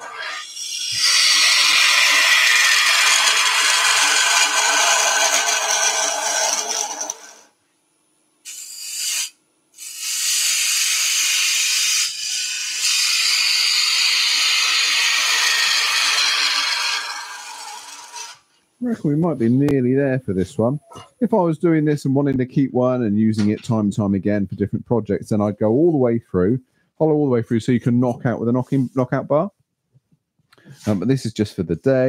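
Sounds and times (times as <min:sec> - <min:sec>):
lathe gouge scraping wood: 0:00.0 - 0:07.4, 0:11.4 - 0:18.4.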